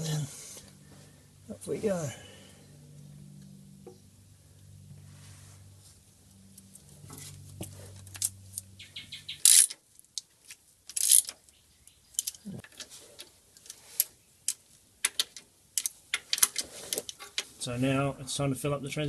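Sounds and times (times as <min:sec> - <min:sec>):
steady low hum: 0:00.0 - 0:09.6
metal tools and bolts clinking: 0:10.9 - 0:11.4.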